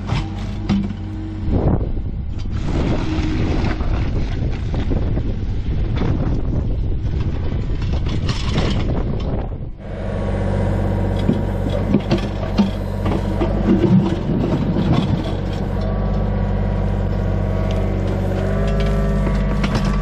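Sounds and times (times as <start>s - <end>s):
bucket clunking and scraping soil: 0.0s - 1.3s, 2.4s - 5.1s, 7.1s - 9.5s, 11.0s - 20.0s
diesel engine running: 0.0s - 4.5s, 8.5s - 20.0s
wind on microphone: 0.0s - 20.0s.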